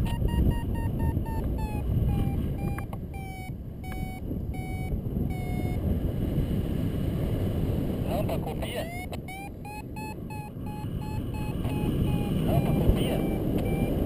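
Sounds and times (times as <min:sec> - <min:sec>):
variometer beeping: 0:00.0 - 0:05.9, 0:08.7 - 0:14.0
wind buffeting microphone: 0:00.0 - 0:14.0.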